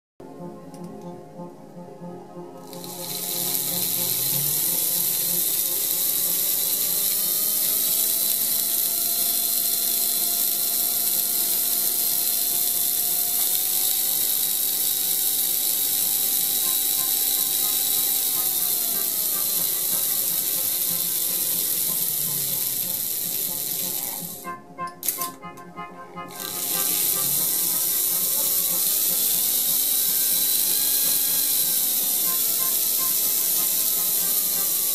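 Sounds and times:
toy locomotive motor buzzing whir: 2.6s - 34.9s.

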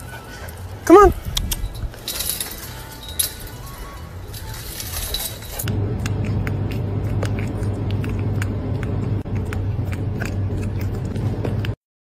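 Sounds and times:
car road rumble: 4.3s - 11.8s.

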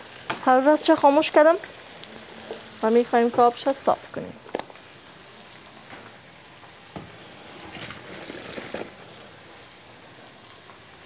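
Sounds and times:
vegetables sizzling in a pan: 0.0s - 11.0s
water pouring into a steel sink: 7.6s - 9.1s.

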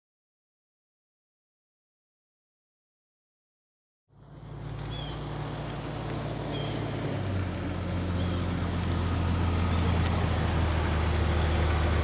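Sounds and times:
car engine hum: 4.1s - 12.0s.

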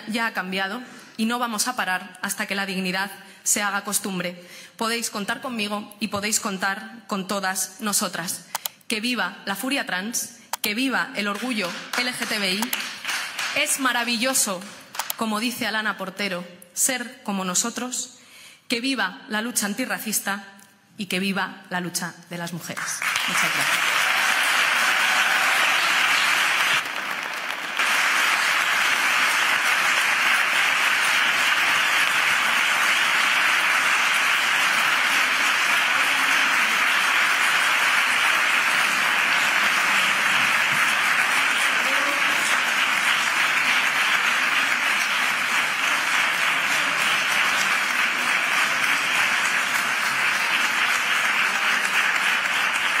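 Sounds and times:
audience applauding: 11.3s - 13.7s, 23.0s - 53.0s.

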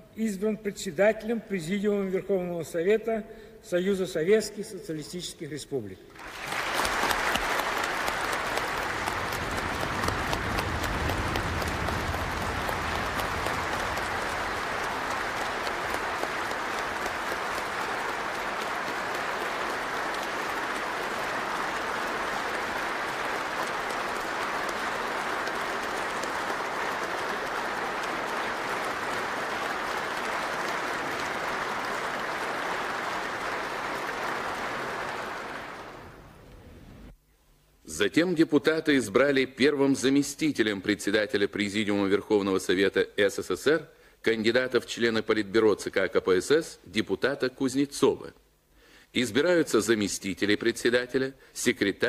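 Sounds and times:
crowd applauding: 6.1s - 36.5s.

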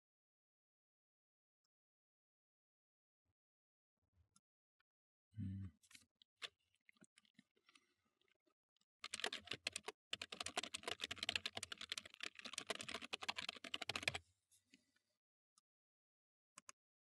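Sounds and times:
computer keyboard typing: 9.0s - 14.2s.

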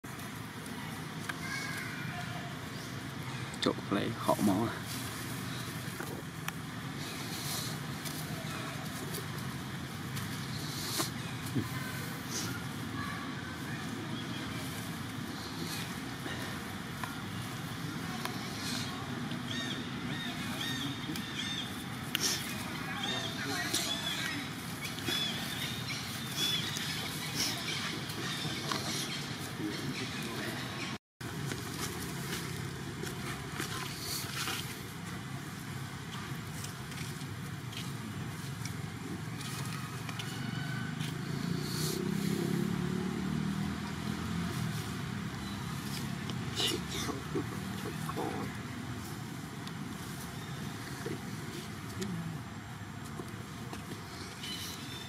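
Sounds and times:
distant vehicle engine rumble: 4.4s - 55.0s.

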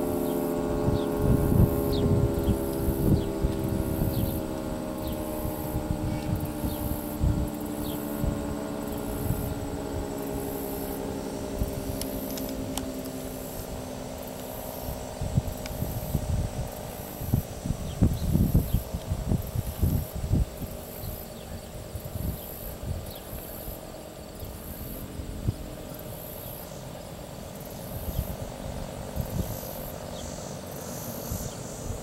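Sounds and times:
warning siren winding down: 0.0s - 17.5s
faint pulsing insect chirp: 0.0s - 32.0s
wind gusts on microphone: 0.0s - 32.0s.

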